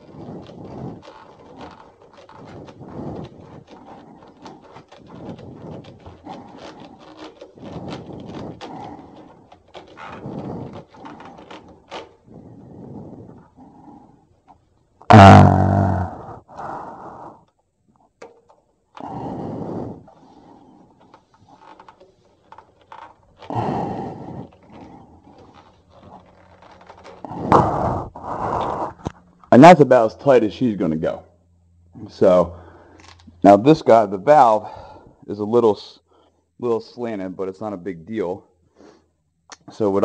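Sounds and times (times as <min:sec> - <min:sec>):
plastic threads rubbing and clicking: 0:00.0 - 0:16.6, 0:17.3 - 0:29.6
breath across microphone: 0:19.0 - 0:21.2, 0:27.3 - 0:29.2, 0:34.6 - 0:35.2, 0:38.7 - 0:39.2.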